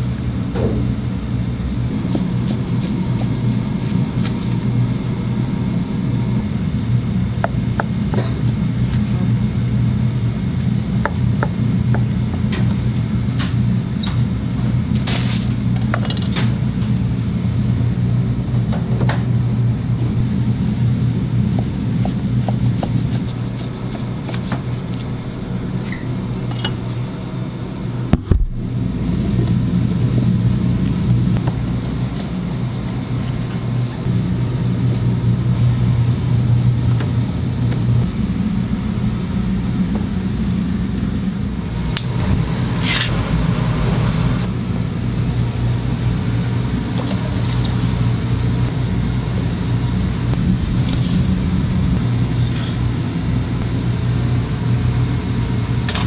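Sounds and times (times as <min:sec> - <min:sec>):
kitchen machinery rumble and hum: 0:00.0 - 0:56.0.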